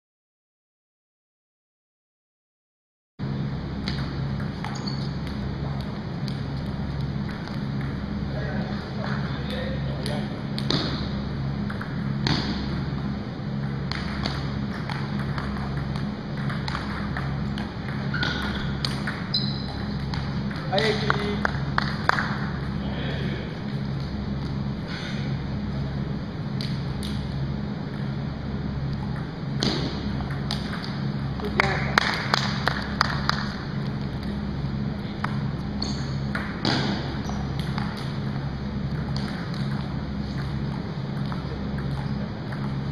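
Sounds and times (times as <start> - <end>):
low hum: 3.2 - 42.9
short squeaks: 4.7 - 5.2, 18.1 - 19.8
table tennis ball clicking: 30.2 - 31.0.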